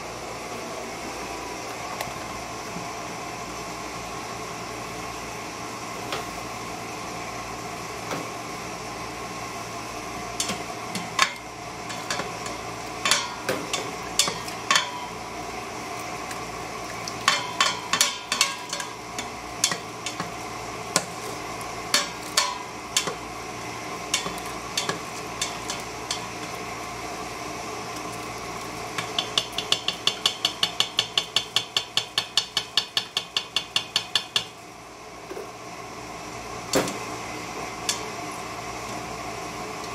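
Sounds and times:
spoon knocking metal pot: 17.2s - 18.9s, 29.0s - 34.5s.

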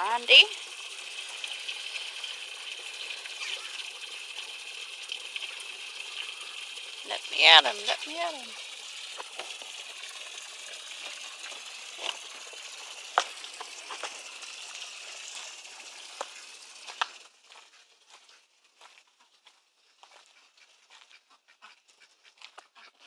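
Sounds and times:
water spraying hiss: 0.0s - 17.2s
footsteps crunching on gravel: 16.2s - 23.0s.

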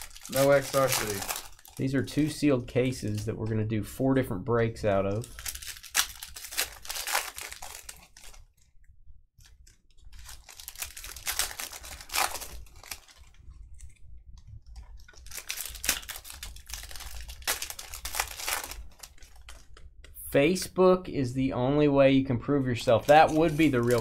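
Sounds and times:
wrappers crinkling and tearing: 0.0s - 3.2s, 5.2s - 8.7s, 9.4s - 14.0s, 14.6s - 19.8s, 22.9s - 24.0s
cards rustling: 0.0s - 3.4s, 5.1s - 8.6s, 9.4s - 19.9s, 22.8s - 24.0s.

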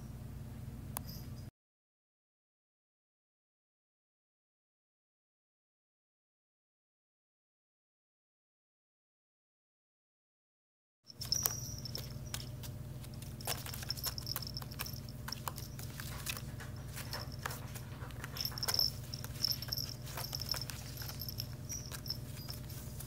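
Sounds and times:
steady low hum: 11.1s - 23.0s
claws scratching woven basket: 11.2s - 23.0s.

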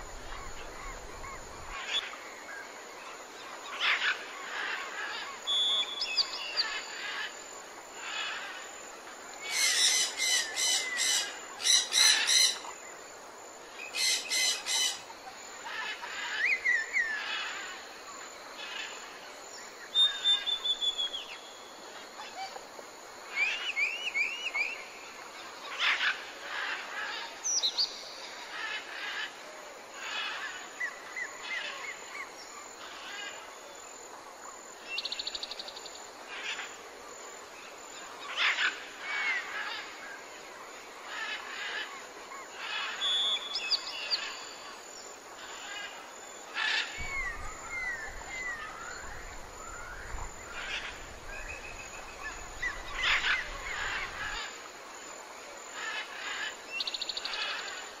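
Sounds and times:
birds chirping and trilling: 0.0s - 2.6s, 9.4s - 13.0s, 13.8s - 19.1s, 37.9s - 54.8s, 55.6s - 58.0s
steady background hiss: 0.0s - 58.0s.

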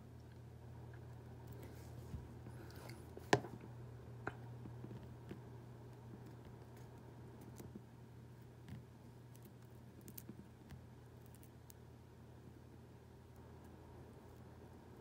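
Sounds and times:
low steady hum: 0.0s - 15.0s
seed pod clicking and crackling: 8.6s - 10.4s.

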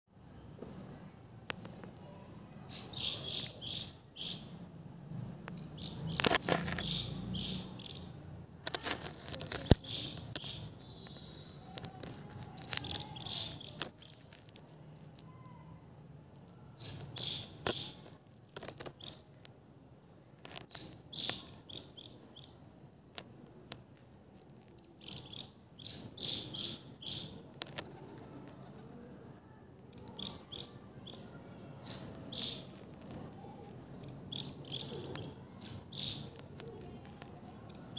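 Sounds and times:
high chirping in bursts: 2.7s - 4.6s, 5.6s - 8.2s, 9.2s - 14.3s, 16.7s - 18.0s, 18.6s - 19.3s, 20.6s - 22.7s, 24.8s - 27.5s, 29.9s - 32.8s, 34.0s - 36.6s.

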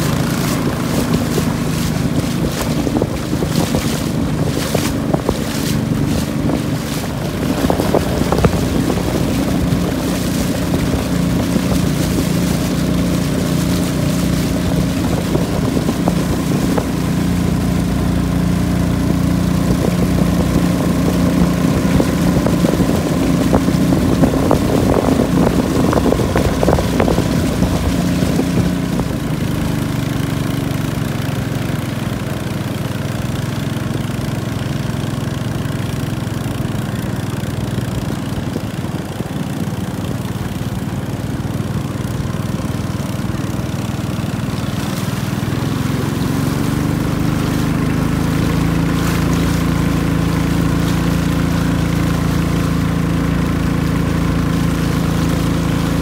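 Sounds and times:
boat engine running: 0.0s - 56.0s
water rushing past hull: 0.0s - 56.0s.

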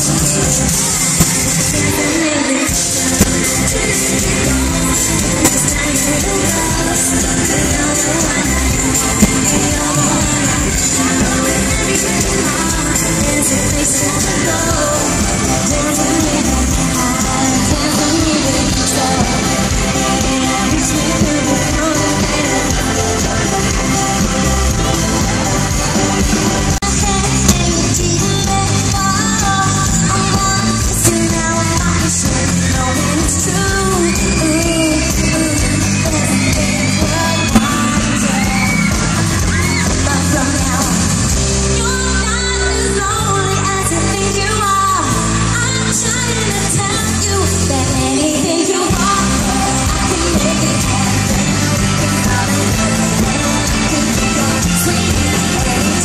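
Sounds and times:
woman singing: 0.0s - 25.8s, 26.6s - 56.0s
crowd yelling: 0.0s - 26.8s, 32.4s - 46.4s
electric guitar: 0.0s - 56.0s
live pop music over loudspeakers: 0.0s - 56.0s.

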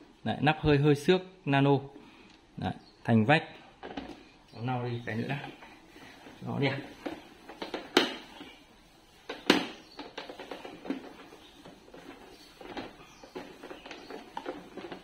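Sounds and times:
hands tapping and rubbing plastic: 5.2s - 15.0s.

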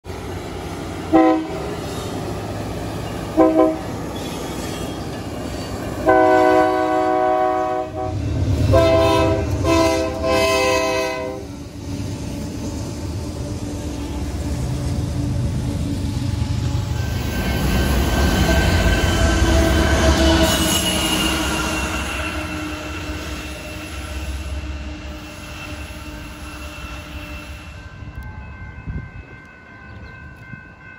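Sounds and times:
passing train rumble: 0.0s - 30.9s
locomotive air horn: 1.1s - 1.7s, 3.4s - 4.0s, 6.0s - 11.6s, 19.4s - 28.0s.

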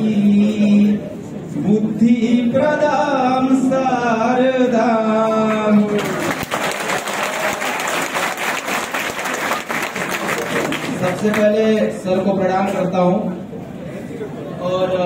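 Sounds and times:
audience applauding: 6.0s - 11.5s.

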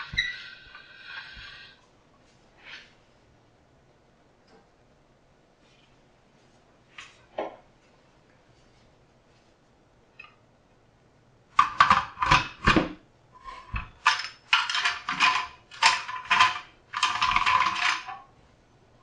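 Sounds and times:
metal pasta machine scraping and clacking: 13.4s - 18.3s.

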